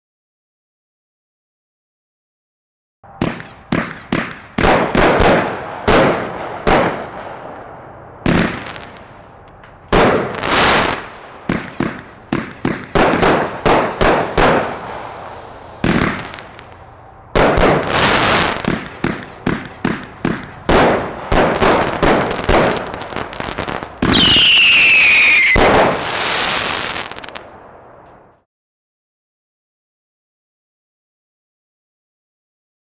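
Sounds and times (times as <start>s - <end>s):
fireworks shots and bursts: 3.1s - 27.8s
falling firework whistle: 13.0s - 18.9s, 23.6s - 27.5s.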